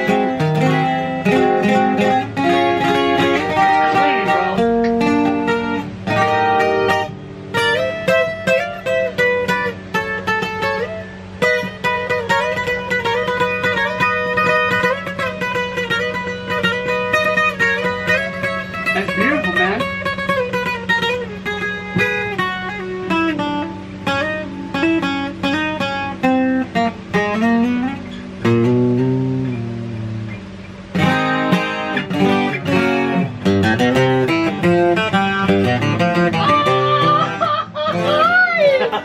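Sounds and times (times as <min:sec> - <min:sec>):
acoustic guitar playing: 0:00.0 - 0:39.0.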